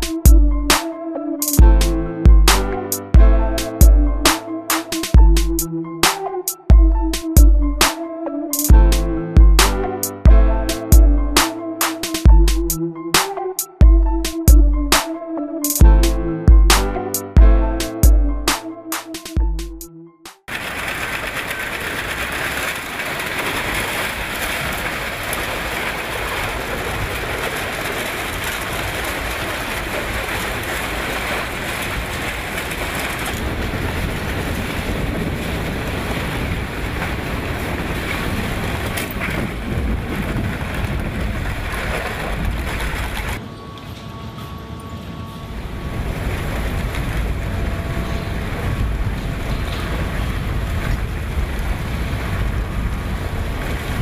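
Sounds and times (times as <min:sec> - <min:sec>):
crushing machinery running: 0:20.5 - 0:54.0.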